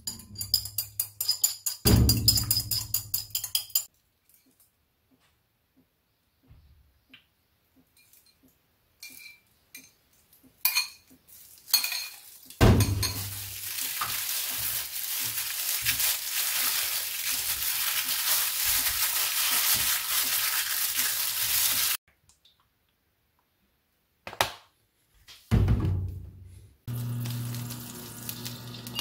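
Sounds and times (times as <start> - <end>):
food sizzling in hot oil: 13.2 - 22.0, 26.9 - 29.0.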